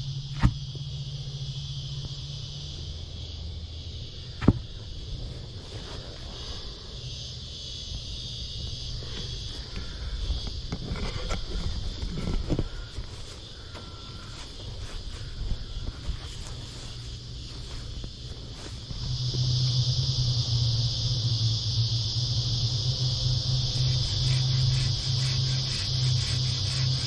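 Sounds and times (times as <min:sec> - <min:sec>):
insect chorus: 0:00.0 - 0:27.0
low hum: 0:00.0 - 0:27.0
sharp knocks: 0:04.4 - 0:04.6.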